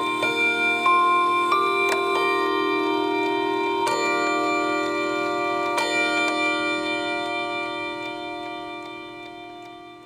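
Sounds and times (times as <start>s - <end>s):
clock chime rods ringing: 0.0s - 10.0s
clock ticking faintly: 0.0s - 10.0s.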